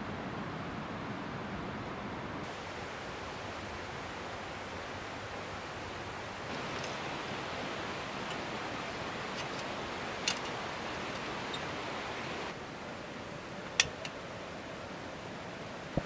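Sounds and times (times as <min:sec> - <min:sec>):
steady hiss: 0:02.4 - 0:16.0.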